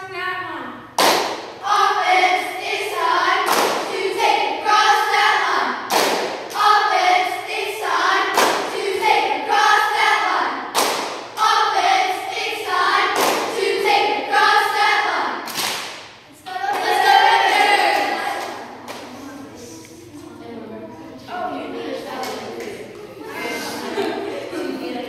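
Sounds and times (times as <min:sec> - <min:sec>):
girls chanting a cheer: 0:00.0 - 0:19.7
clap or stomp beat: 0:01.0 - 0:01.6, 0:03.4 - 0:04.0, 0:05.9 - 0:06.8, 0:08.3 - 0:08.8, 0:10.7 - 0:11.5, 0:13.1 - 0:13.6, 0:15.4 - 0:17.0.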